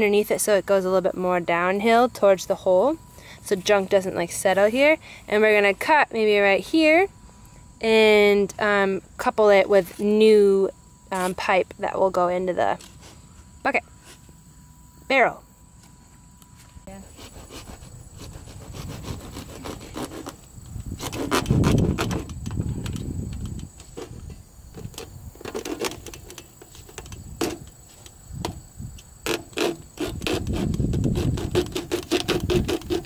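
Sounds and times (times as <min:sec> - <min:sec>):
hand saw rasping through plastic pipe: 0:17.1 - 0:22.4, 0:29.2 - 0:33.0.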